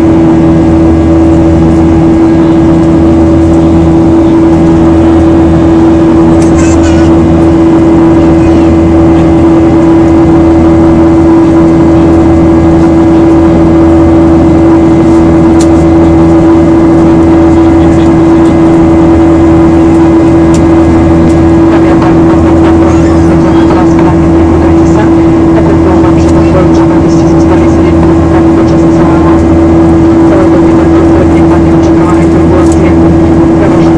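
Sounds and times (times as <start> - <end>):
jet engine drone in cabin: 0.0 - 33.9.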